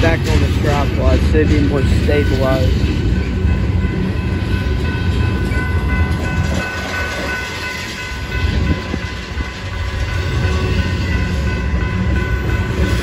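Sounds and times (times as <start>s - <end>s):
freight train wheels rumbling on rails: 0.0s - 13.0s.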